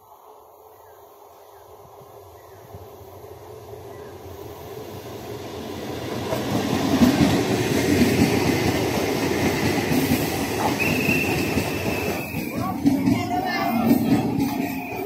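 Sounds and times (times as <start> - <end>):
train wheels rumbling on rails: 1.8 - 15.0.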